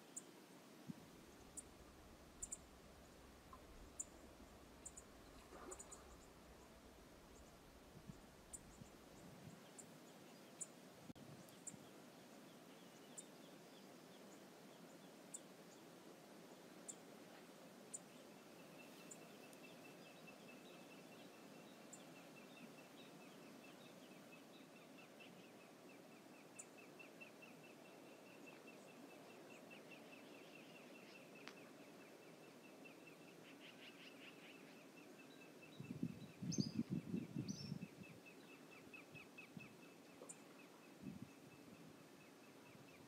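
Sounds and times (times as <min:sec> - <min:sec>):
rough low noise: 0:00.6 - 0:09.5.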